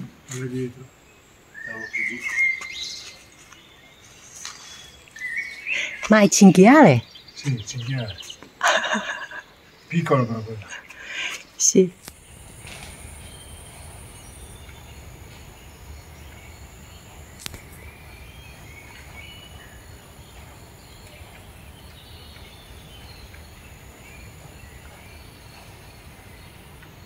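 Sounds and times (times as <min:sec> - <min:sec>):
bird chirps: 0:01.1 - 0:27.0
insect drone: 0:07.0 - 0:27.0
low rumble: 0:11.9 - 0:27.0.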